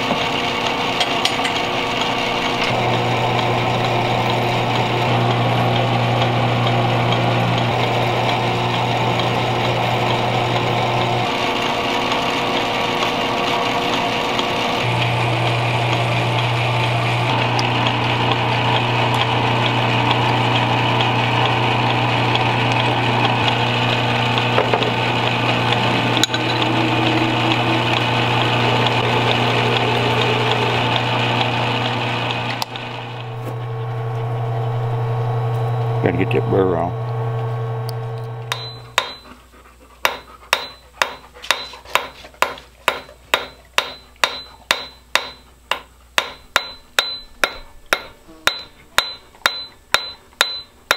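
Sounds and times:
metal lathe motor hum: 0.0 - 39.2.

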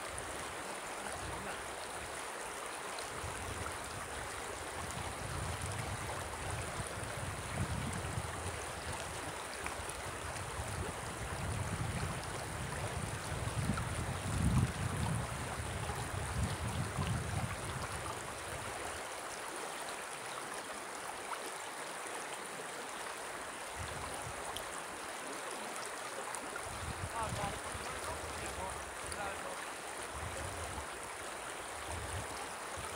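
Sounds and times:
river flowing over stones: 0.0 - 32.9
wind rumbling on microphone: 3.1 - 19.0, 23.7 - 24.4, 26.6 - 29.4, 30.1 - 31.0, 31.7 - 32.9.

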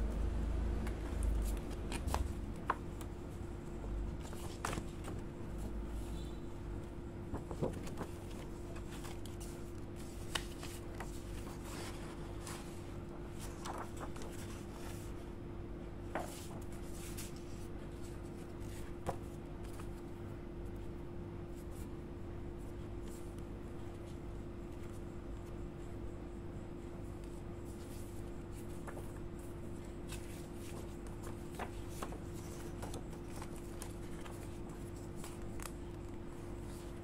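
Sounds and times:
steady hum: 0.0 - 37.0
paper rustling and sliding: 7.2 - 15.3, 16.0 - 20.1, 27.2 - 37.0.

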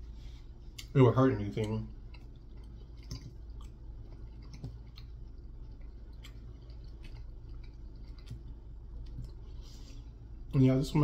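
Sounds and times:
person chewing: 0.0 - 10.5
low steady hum: 0.0 - 11.0.

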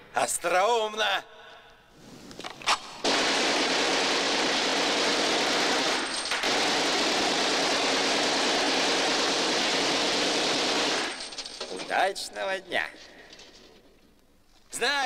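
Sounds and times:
automatic gunfire burst: 3.0 - 11.8.

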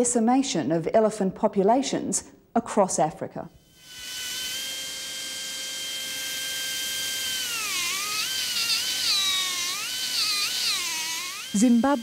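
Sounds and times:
rotary carving drill whining: 3.6 - 12.0.

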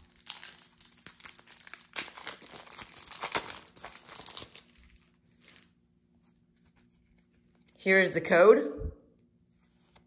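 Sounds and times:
wrapper tearing and crinkling: 0.0 - 5.7.

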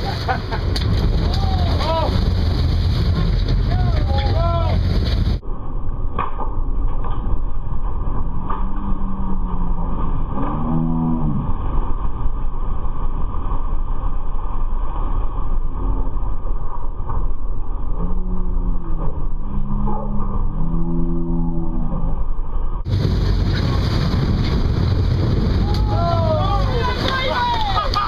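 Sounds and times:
wind on microphone: 0.0 - 28.0
person shouting: 3.8 - 4.8, 25.7 - 28.0.

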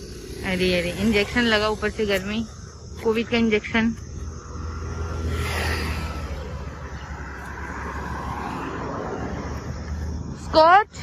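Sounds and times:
cars passing: 0.0 - 11.0.

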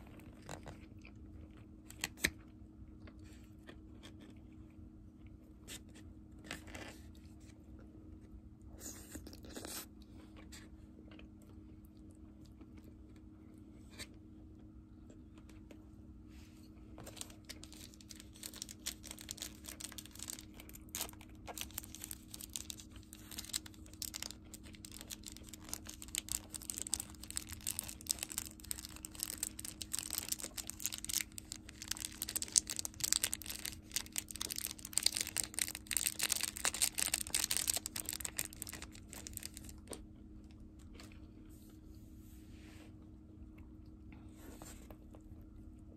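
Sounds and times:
plastic packet crinkling and tearing: 17.0 - 40.0.

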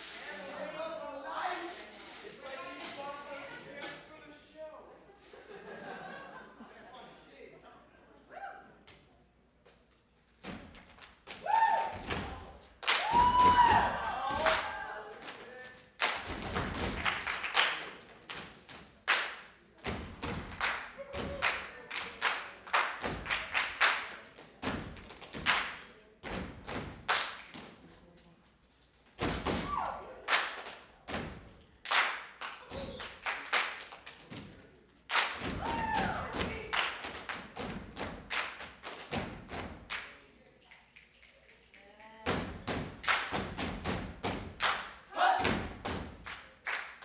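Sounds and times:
hands clapping: 10.7 - 28.3, 29.6 - 47.0
stomps on stage floor: 42.3 - 44.6, 45.4 - 46.3.

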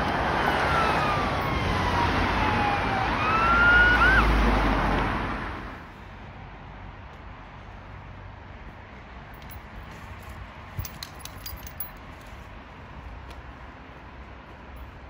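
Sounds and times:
emergency siren wailing: 0.0 - 5.8
traffic and engine rumble: 0.0 - 15.0.

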